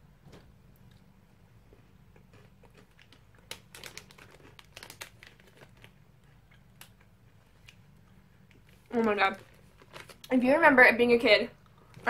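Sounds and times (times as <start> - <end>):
plastic packaging crinkling: 2.3 - 7.9, 8.5 - 10.5.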